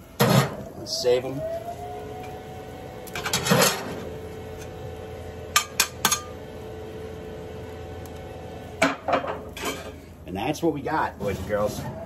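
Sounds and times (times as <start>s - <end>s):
faint steady hum: 0.0s - 11.2s
spatulas scraping metal griddle: 9.4s - 10.0s.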